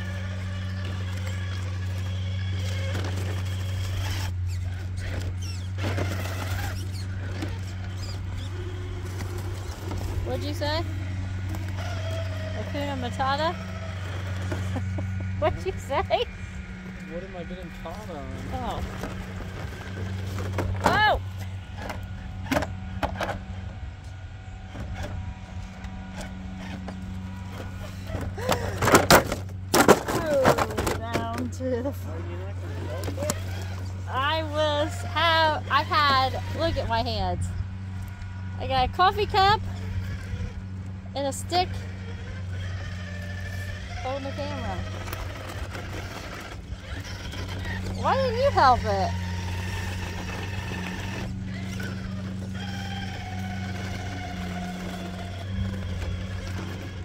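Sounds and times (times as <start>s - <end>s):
toy car drivetrain hum: 0.0s - 57.0s
short high squeaks: 0.7s - 8.8s.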